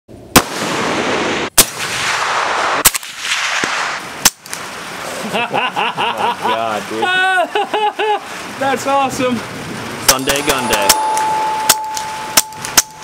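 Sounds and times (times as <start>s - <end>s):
rifle shots with rolling echo: 0.3s - 4.7s
men laughing: 5.1s - 8.6s
men talking: 5.2s - 11.2s.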